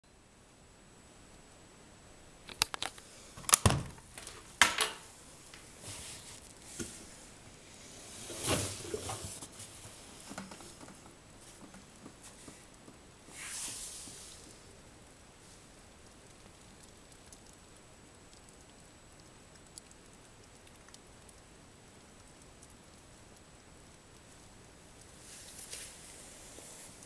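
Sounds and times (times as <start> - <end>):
rustling of wet laundry: 4.0 - 14.6.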